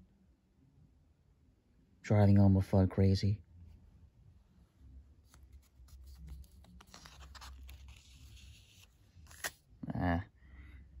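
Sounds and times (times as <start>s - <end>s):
paper pages rustling: 5.2s - 9.7s.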